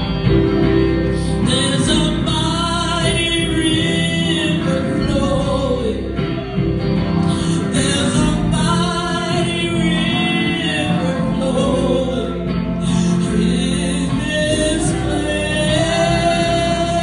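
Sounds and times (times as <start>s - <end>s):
electric guitar: 0.0s - 17.0s
woman singing into microphone: 1.2s - 6.2s, 7.3s - 17.0s.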